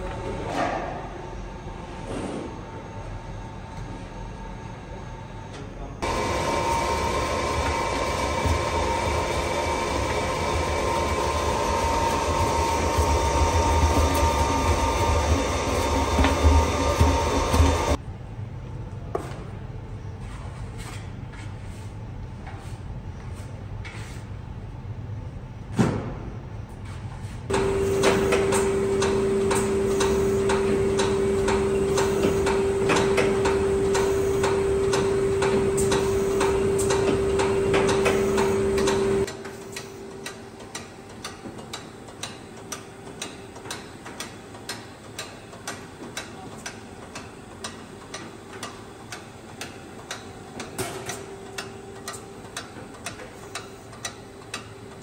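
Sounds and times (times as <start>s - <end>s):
loud machine hum with clicking: 0.0s - 18.0s, 27.5s - 55.0s.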